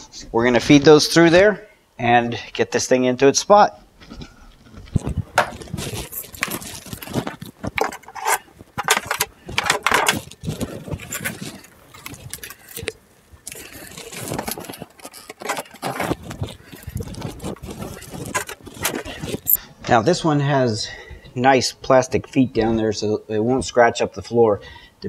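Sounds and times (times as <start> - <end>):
plastic hose rustling and scraping: 3.9 - 19.6.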